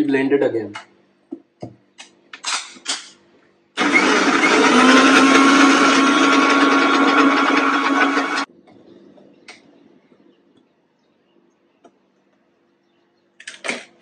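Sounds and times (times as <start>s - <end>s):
mixer grinder motor humming: 3.8s - 8.5s.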